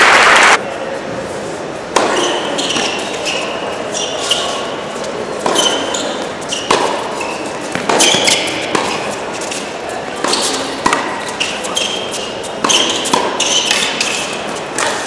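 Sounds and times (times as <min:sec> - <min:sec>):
tennis ball struck by rackets: 0:01.9 - 0:03.0, 0:06.6 - 0:09.1, 0:10.2 - 0:11.4, 0:12.6 - 0:15.0
sneakers squeaking on court: 0:02.0 - 0:15.0.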